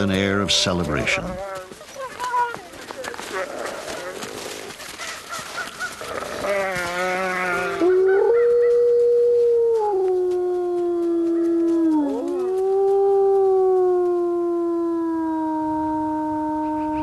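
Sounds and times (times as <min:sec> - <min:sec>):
wolf howling: 0:06.0 - 0:17.0.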